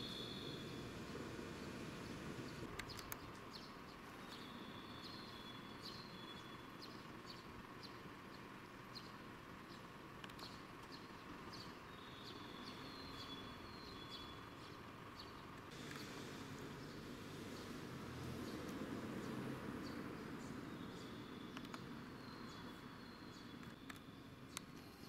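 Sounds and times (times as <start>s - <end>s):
distant traffic hum: 0.0s - 25.0s
small birds chirping: 0.0s - 25.0s.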